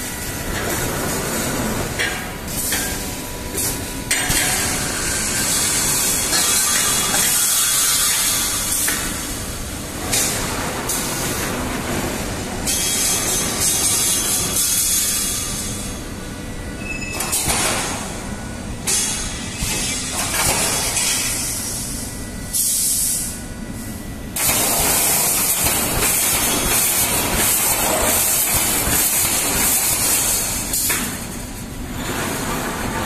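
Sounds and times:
welding machine clatter: 0:00.0 - 0:16.0, 0:17.2 - 0:18.2, 0:18.8 - 0:21.8, 0:24.4 - 0:33.0
pneumatic cylinders hissing: 0:18.9 - 0:21.9.

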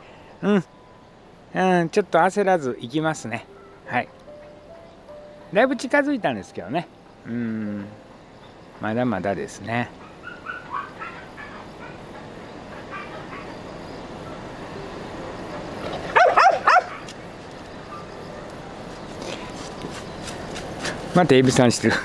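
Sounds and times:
dog barking: 0:10.0 - 0:12.0, 0:12.8 - 0:13.6, 0:16.1 - 0:17.1
dog whining: 0:10.0 - 0:12.0.

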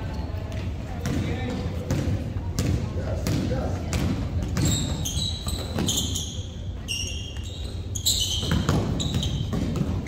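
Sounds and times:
sneaker squeaks: 0:00.0 - 0:10.0
basketball bouncing on gym floor: 0:00.5 - 0:06.3, 0:08.1 - 0:10.0.

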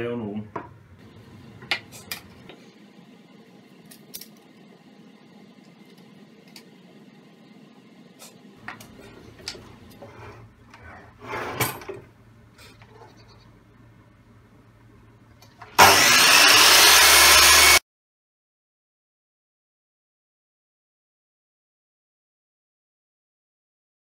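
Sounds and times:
mitre saw cutting wood: 0:15.8 - 0:17.8.

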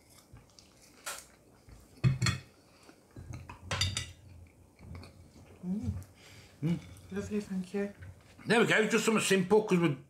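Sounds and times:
plate and cutlery clinking: 0:02.0 - 0:02.5, 0:03.3 - 0:04.2.

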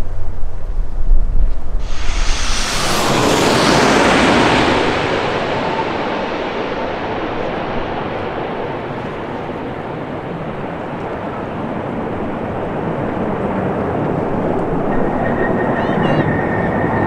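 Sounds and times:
jet airliner roar overhead: 0:01.8 - 0:14.8.

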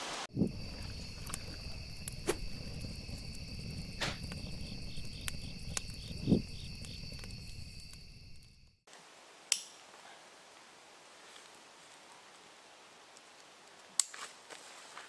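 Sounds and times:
crickets chirping: 0:00.3 - 0:08.9.

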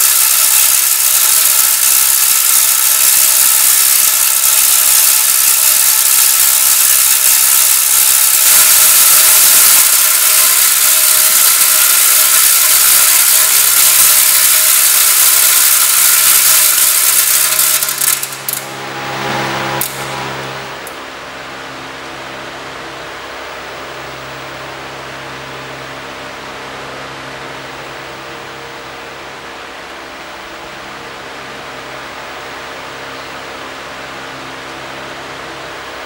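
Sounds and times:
loud mechanical rattling: 0:00.0 - 0:21.0
steady multi-tone hum: 0:00.0 - 0:36.0.

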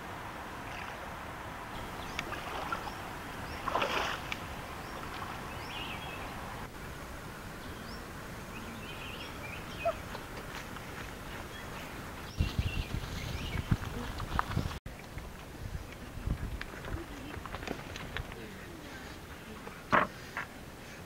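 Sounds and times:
outdoor background noise: 0:00.0 - 0:21.0
water splashing and draining: 0:01.8 - 0:06.7
bird chirps: 0:04.8 - 0:06.4, 0:07.6 - 0:10.4.

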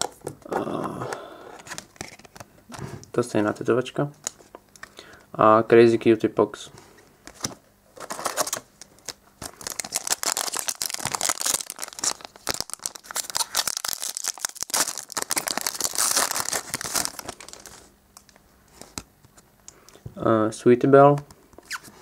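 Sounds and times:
foil wrapper crinkling and tearing: 0:08.0 - 0:19.0.

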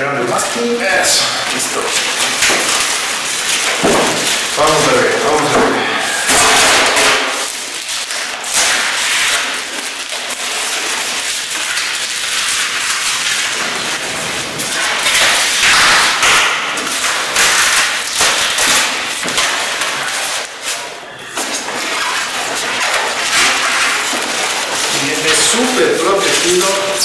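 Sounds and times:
packing foam and plastic rustling: 0:00.0 - 0:27.0
knocks: 0:03.8 - 0:04.4.

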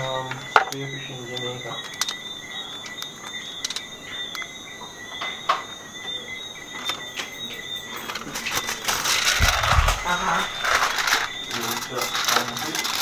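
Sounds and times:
high-pitched whine: 0:00.0 - 0:13.0
aluminium foil crinkling: 0:08.0 - 0:13.0.

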